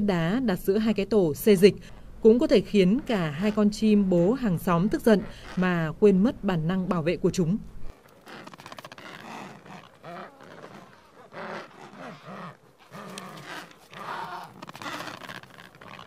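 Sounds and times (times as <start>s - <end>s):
penguins squawking: 2.7s - 6.0s, 7.9s - 16.0s.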